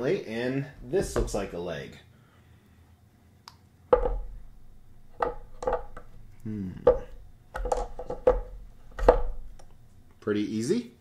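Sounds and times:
heavy statue parts knocking: 0.8 - 1.6, 3.9 - 10.2.

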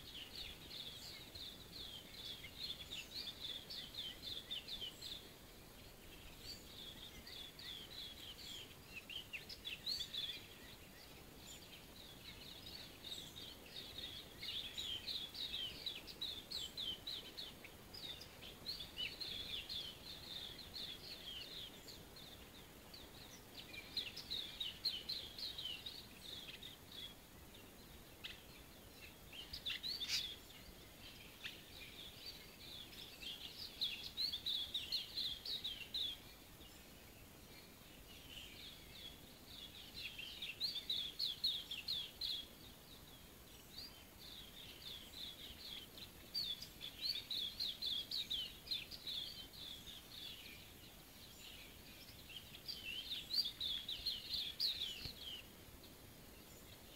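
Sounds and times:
faint steady hiss: 0.0 - 56.9
songbirds chirping and twittering: 0.0 - 56.9.

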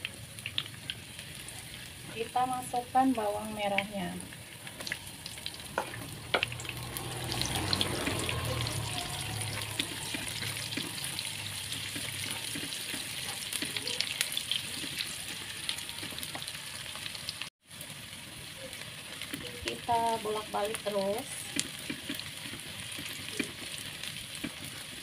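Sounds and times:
shallots sizzling in hot oil: 0.0 - 25.0
spatula scraping a pan: 7.4 - 16.3, 21.6 - 25.0.

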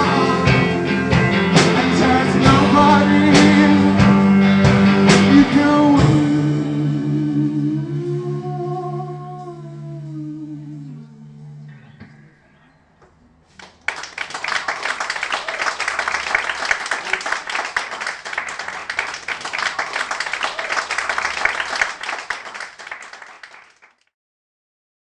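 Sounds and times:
audience applause: 13.6 - 24.1.

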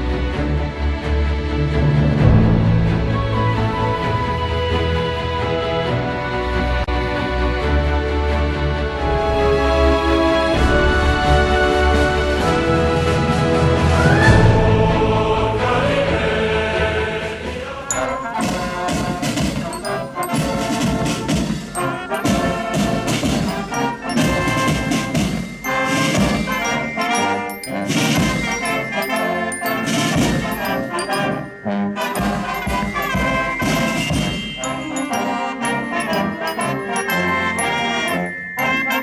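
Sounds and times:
brass instruments playing: 17.9 - 39.0
steady drumming: 17.9 - 39.0.

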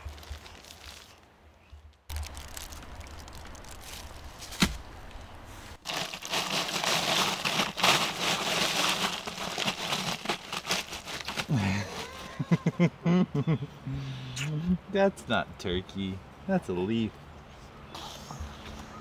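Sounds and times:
crinkling and crackling: 0.0 - 12.4.

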